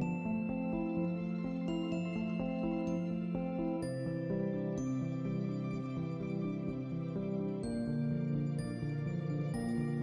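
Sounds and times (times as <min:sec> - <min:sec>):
gentle new-age music: 0:00.0 - 0:10.0.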